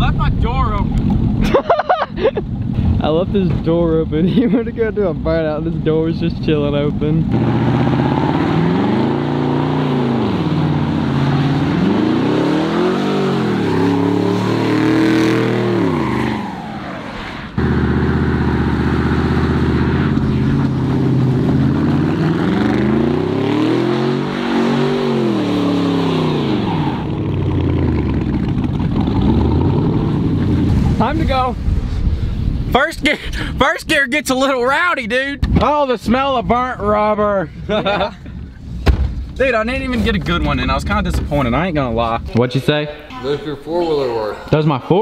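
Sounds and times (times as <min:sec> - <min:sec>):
truck engine revving: 0:07.2 - 0:31.0.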